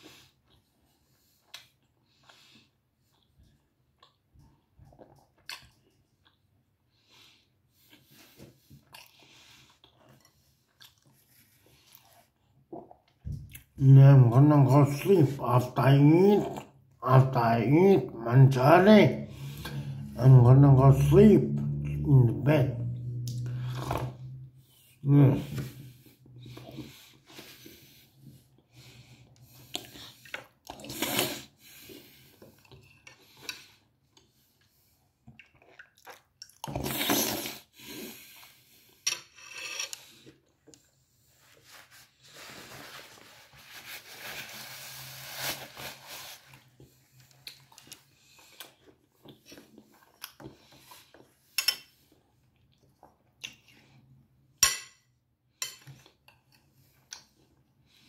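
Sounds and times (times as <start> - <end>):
man chewing: 0.0 - 13.7, 22.8 - 39.0, 46.5 - 54.2.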